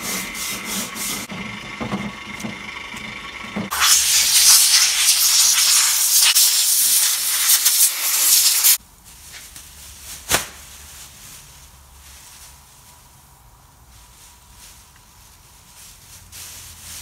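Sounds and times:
air blow gun hissing: 0.0s - 1.3s, 3.7s - 8.8s.

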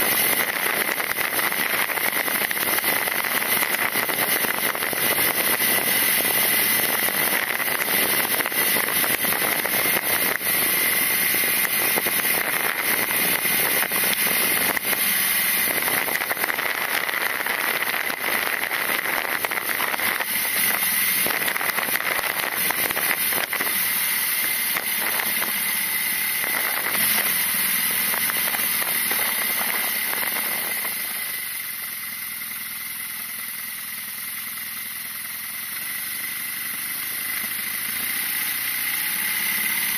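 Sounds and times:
wind and road noise: 0.0s - 31.4s
motorcycle engine running: 0.0s - 39.9s.

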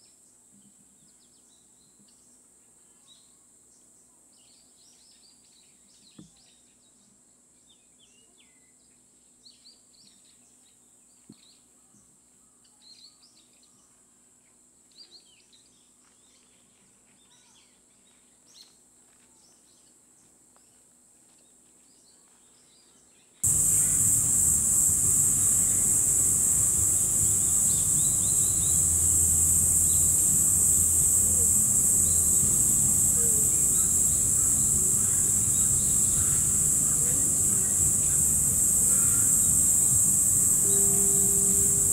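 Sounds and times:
high-pitched insect chorus: 23.4s - 41.9s
small birds chirping: 23.4s - 41.9s.

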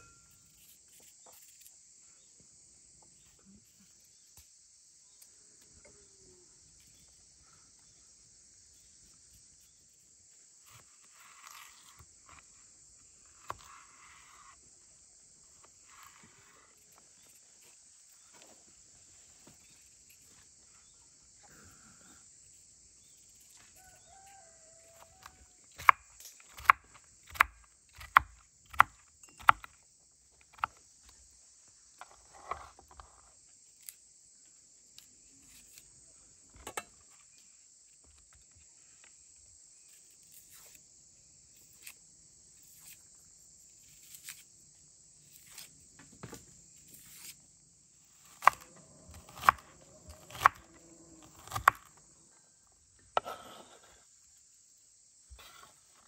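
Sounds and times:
high-pitched insect chorus: 0.0s - 56.0s
knife chopping onto wooden board: 48.3s - 50.6s, 51.3s - 51.9s.

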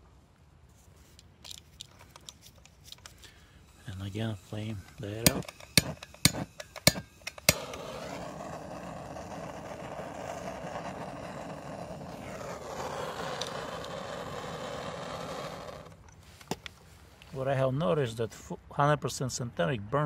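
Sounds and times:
gas torch flame hissing: 3.6s - 16.0s
gas torch igniter clicks: 4.9s - 7.9s.

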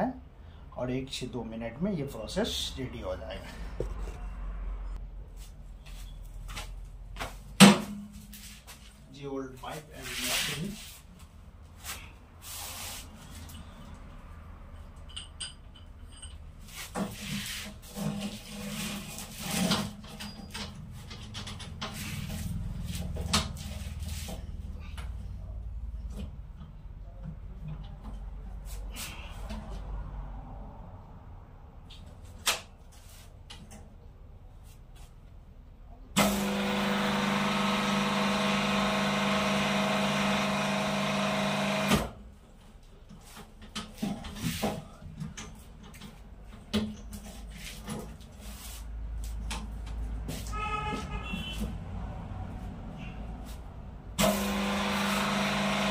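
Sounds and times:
rubber hose scraping against machine: 9.9s - 11.2s, 16.7s - 24.5s
hose crimping machine humming: 36.2s - 42.0s.

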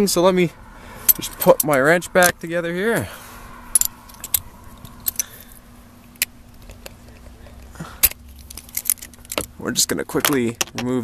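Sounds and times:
faint steady hum: 0.0s - 11.0s
metal clicks and clinks: 3.7s - 5.4s, 8.0s - 9.5s.

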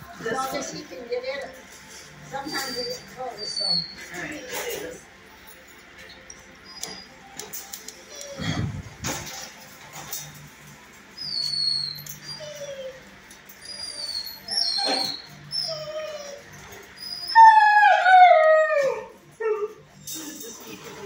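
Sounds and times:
dog whining: 2.3s - 5.1s, 6.0s - 9.1s, 11.1s - 20.0s.

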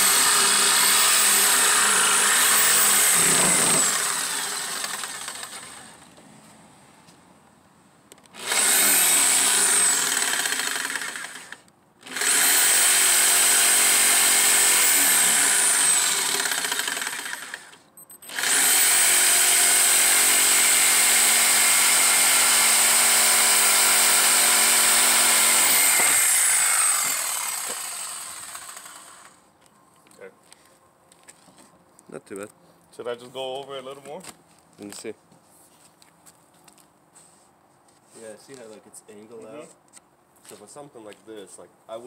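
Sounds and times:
jigsaw cutting wood: 0.0s - 6.1s, 8.3s - 29.4s.

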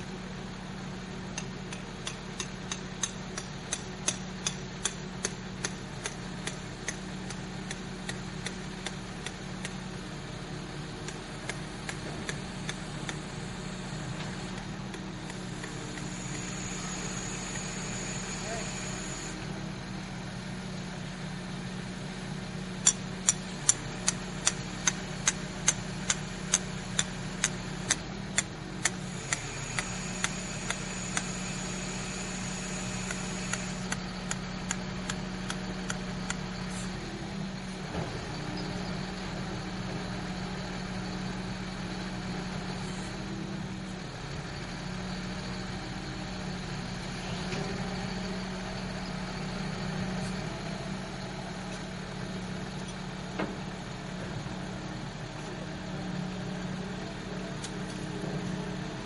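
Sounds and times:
crane engine humming: 0.0s - 59.0s
sharp clicks: 33.0s - 36.4s.

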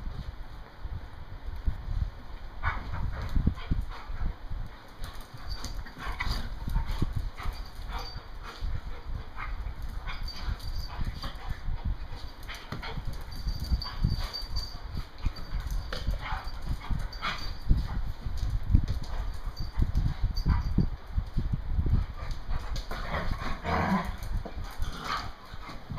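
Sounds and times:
dogs scuffling: 1.6s - 25.9s
paws thudding on tiles: 1.6s - 25.9s.

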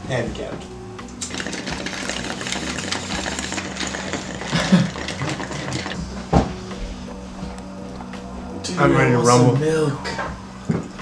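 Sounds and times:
milk gurgling down a tube: 1.2s - 6.0s.

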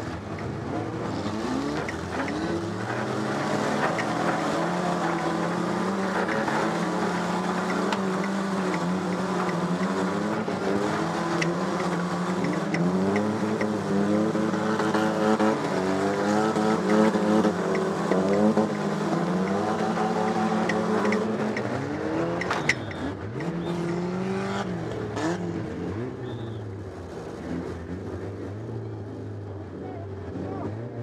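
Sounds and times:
race car engine revving: 0.0s - 31.0s
sharp ticks and knocks: 1.7s - 4.5s, 7.4s - 10.3s, 11.2s - 13.8s, 16.1s - 21.8s.

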